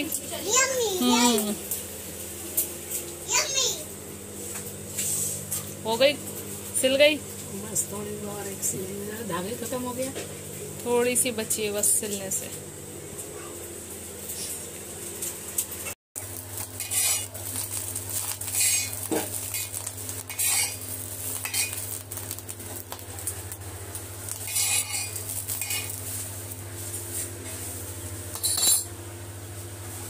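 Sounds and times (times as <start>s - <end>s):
light sizzle: 0.0s - 30.0s
steady low hum: 0.0s - 30.0s
metal utensil scraping frying pan: 16.8s - 17.6s, 18.2s - 21.9s, 24.4s - 26.0s.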